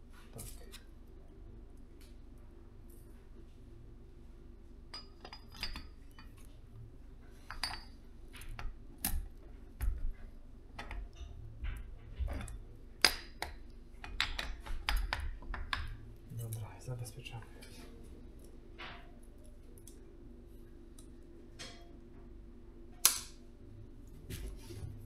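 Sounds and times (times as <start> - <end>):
low steady hum: 0.0 - 25.0
metal engine parts clinking: 4.9 - 6.4, 7.4 - 8.0.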